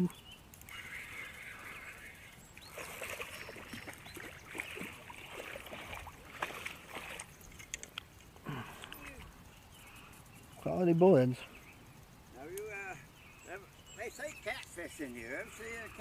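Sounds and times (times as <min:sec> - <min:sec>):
water splashing and sloshing: 0:02.6 - 0:08.3.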